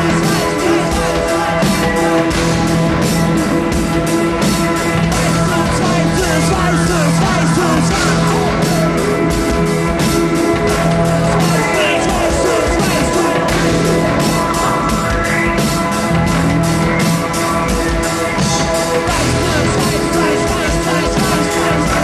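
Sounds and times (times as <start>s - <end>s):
live band playing: 0.0s - 22.0s.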